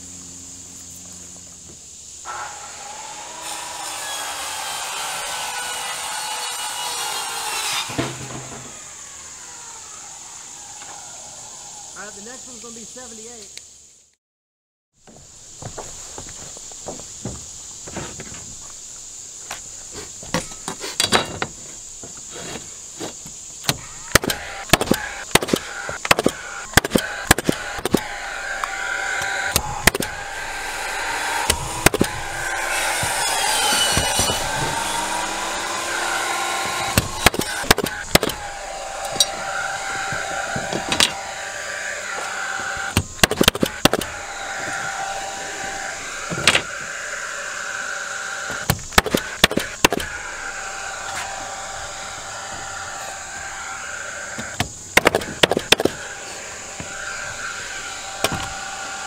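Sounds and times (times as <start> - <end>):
nailer firing nails into plywood: 23.6 - 41.2, 42.7 - 45.1, 48.5 - 50.2, 54.5 - 56.0, 58.2 - 58.7
humming motor: 23.8 - 59.0.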